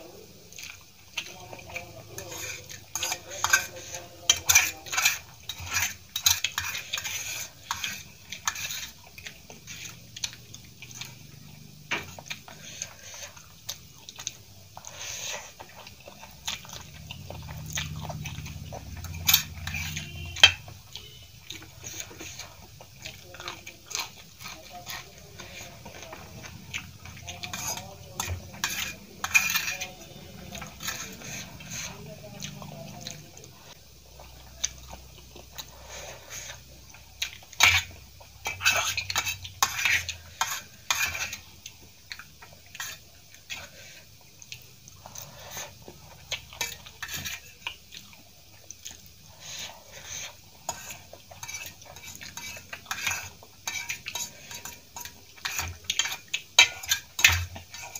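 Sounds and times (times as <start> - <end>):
fork clinking and scraping on plate: 18.8 - 20.7, 27.3 - 32.0.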